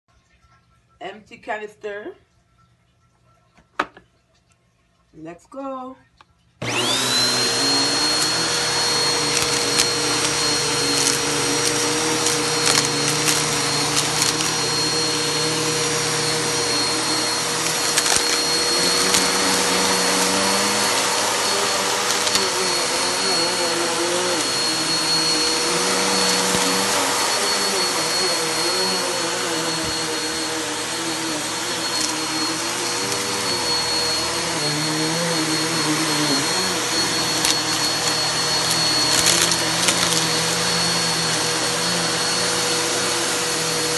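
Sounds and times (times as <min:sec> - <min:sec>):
vacuum cleaner motor whine: 0:06.6 - 0:43.9.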